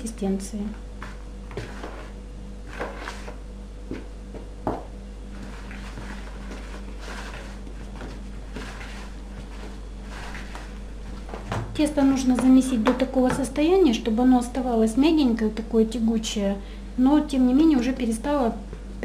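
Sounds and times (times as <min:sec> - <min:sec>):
steady low hum: 0:00.0 - 0:19.0
hands kneading dough: 0:00.9 - 0:13.6.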